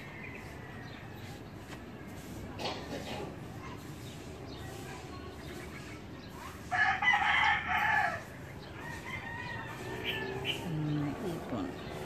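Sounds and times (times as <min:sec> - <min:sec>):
rooster crowing: 0:06.7 - 0:10.6.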